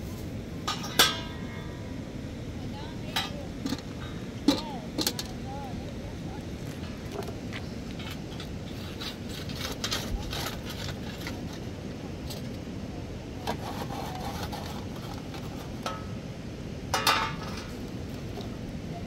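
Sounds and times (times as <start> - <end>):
steady low rush: 0.0 - 9.2
cooking tools and firewood clinking: 0.1 - 1.8, 3.0 - 5.4, 6.6 - 12.7, 13.4 - 18.6.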